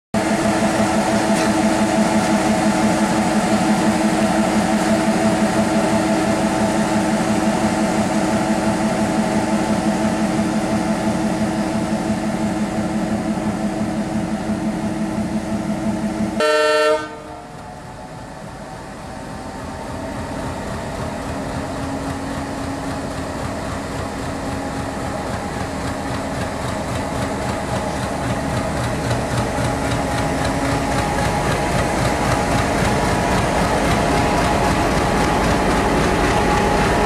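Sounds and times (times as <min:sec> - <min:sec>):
locomotive engine running: 0:00.2 - 0:37.0
train noise: 0:00.2 - 0:37.0
locomotive horn blast: 0:16.3 - 0:17.6.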